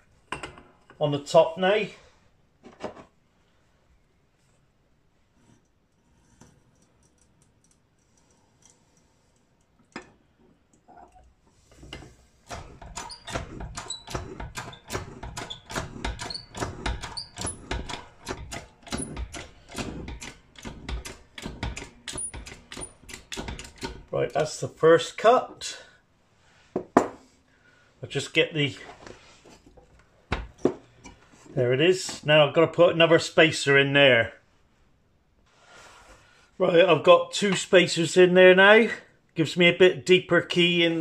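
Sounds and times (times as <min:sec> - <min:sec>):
high squeaks of metal cutting: 0:12.5 - 0:18.0.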